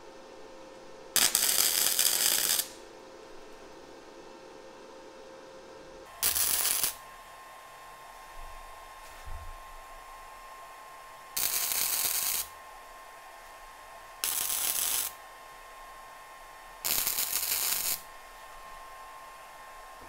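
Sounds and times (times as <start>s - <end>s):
welder arc noise: 1.1s - 2.9s, 6.1s - 7.1s, 11.2s - 20.0s.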